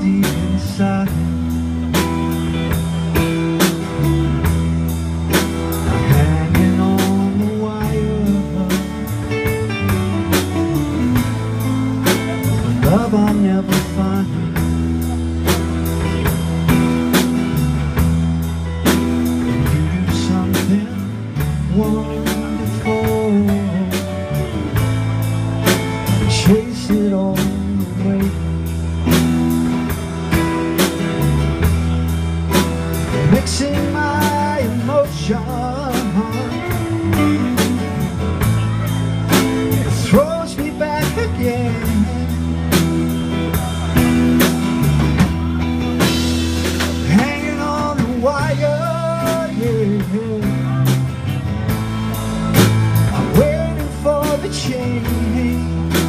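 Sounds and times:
man singing: 0.0 - 2.8, 5.3 - 16.2, 19.3 - 29.3, 32.9 - 44.5, 45.9 - 51.8, 52.6 - 56.0
drum kit with cymbals: 0.0 - 56.0
guitars playing: 0.0 - 56.0.

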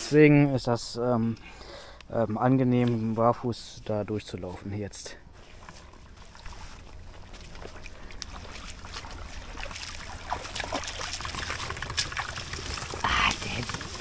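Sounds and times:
water splashing and sloshing: 4.2 - 14.0.

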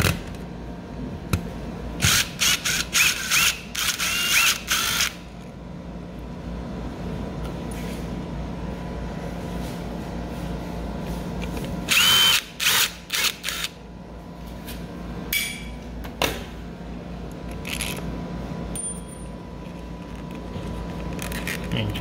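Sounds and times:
cordless drill motor whine: 2.0 - 5.2, 11.9 - 13.8.

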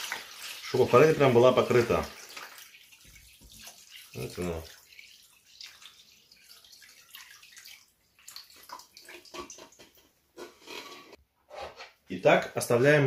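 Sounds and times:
brine splashing and trickling: 0.0 - 10.1.

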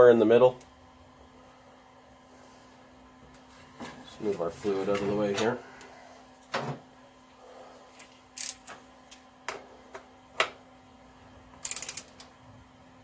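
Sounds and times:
torque wrench ratchet clicks: 8.4 - 8.7, 11.6 - 12.3.

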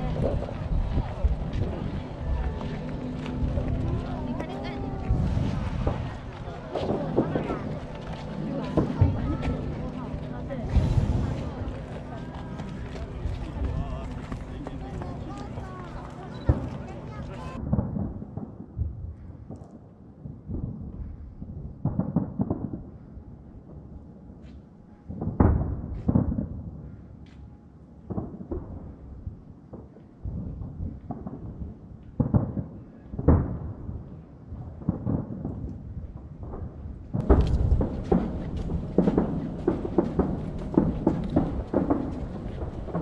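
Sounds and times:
firework shells booming: 36.4 - 43.0.

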